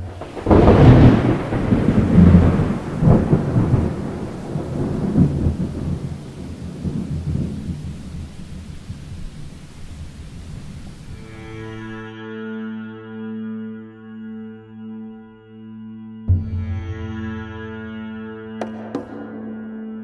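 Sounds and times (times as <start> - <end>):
thunder crack: 0.0 - 11.1
rolling thunder rumbles: 0.0 - 11.2.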